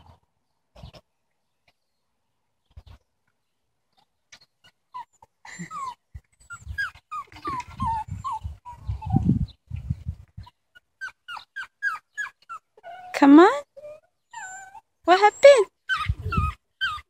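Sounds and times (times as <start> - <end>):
dog whining and whimpering: 4.9 - 9.4, 10.8 - 17.0.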